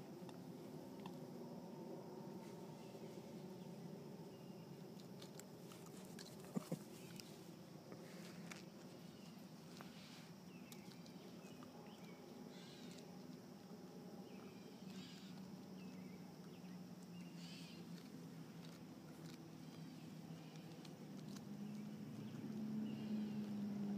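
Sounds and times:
low steady hum: 0.0 - 23.9.

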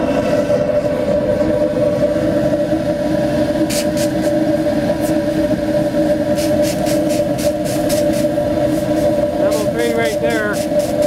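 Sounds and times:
flame burner roaring: 0.0 - 11.0
water squirts hissing on hot pipe: 3.7 - 4.4, 6.3 - 11.0.

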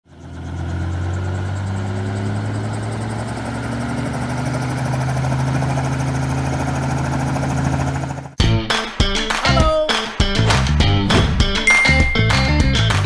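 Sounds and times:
helicopter engine drone: 0.1 - 8.4
helicopter rotor chop: 0.1 - 8.4.

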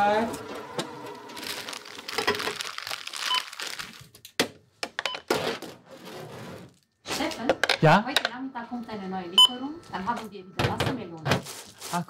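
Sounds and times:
packaging crinkling: 1.2 - 4.4
electronic checkout beep: 9.0 - 10.6.

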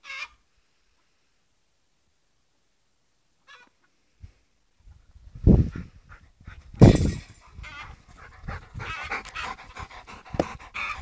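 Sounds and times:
dog panting: 7.4 - 11.0.

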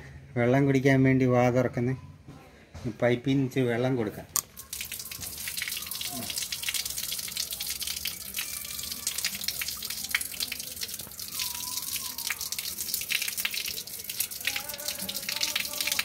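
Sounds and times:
spattering drips: 4.4 - 16.0
water running from a tap: 4.4 - 16.0.

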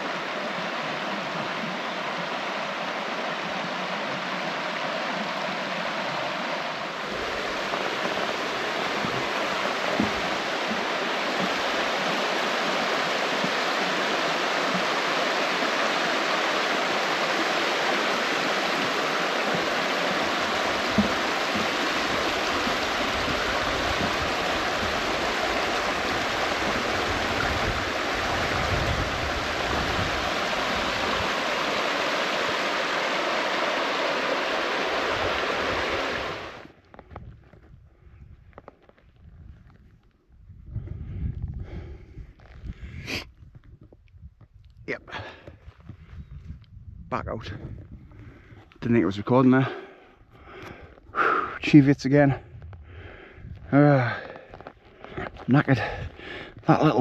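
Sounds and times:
stream rushing over stones: 0.0 - 36.9, 53.7 - 57.0.

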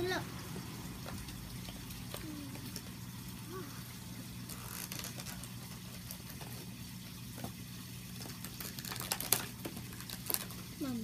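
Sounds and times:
plastic packaging crinkling: 4.5 - 6.5, 8.1 - 10.7.

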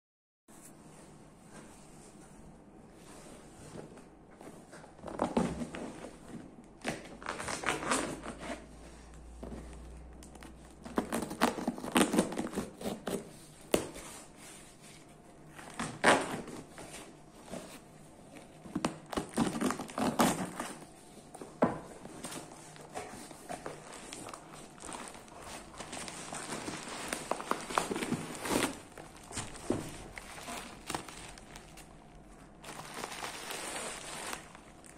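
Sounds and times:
cardboard flaps tearing open: 10.8 - 13.9, 18.8 - 20.8.

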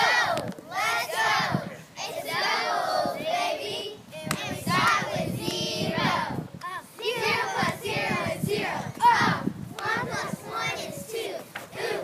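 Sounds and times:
children singing: 7.1 - 12.0.

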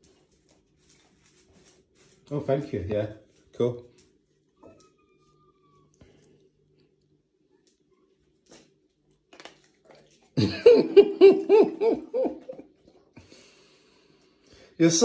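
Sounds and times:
woman laughing: 10.4 - 12.7.

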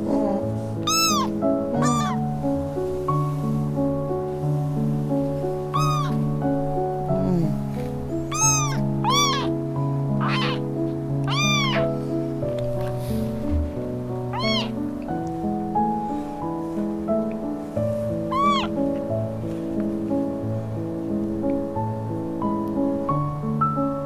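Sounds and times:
background music: 0.0 - 24.0
kitten meowing: 0.8 - 2.3, 5.7 - 6.3, 8.2 - 12.0, 14.3 - 14.8, 18.2 - 18.8.

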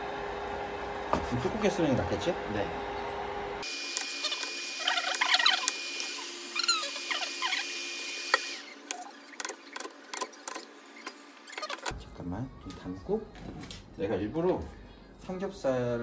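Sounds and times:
cleaver squeaky scraping: 4.1 - 7.8, 8.6 - 11.9.

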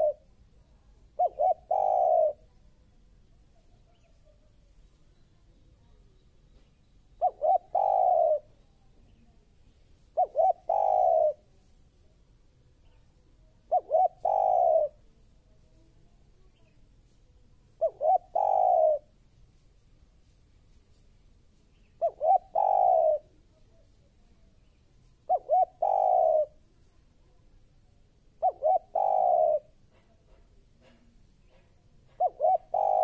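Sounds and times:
dove cooing: 0.0 - 0.3, 1.1 - 2.6, 7.2 - 8.6, 10.1 - 11.5, 13.6 - 15.1, 17.8 - 19.1, 22.0 - 23.4, 25.2 - 26.6, 28.3 - 33.0.

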